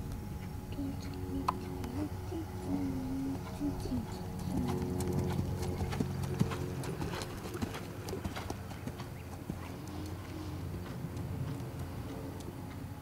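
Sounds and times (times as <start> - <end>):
horse hoofbeats cantering on grass: 4.2 - 12.9.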